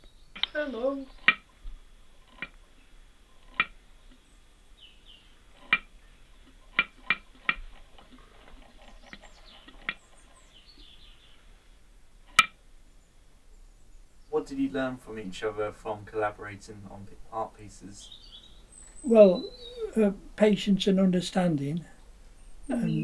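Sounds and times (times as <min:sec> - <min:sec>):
wooden jaw clacking: 0:02.2 - 0:02.6, 0:03.4 - 0:04.2, 0:05.6 - 0:10.3.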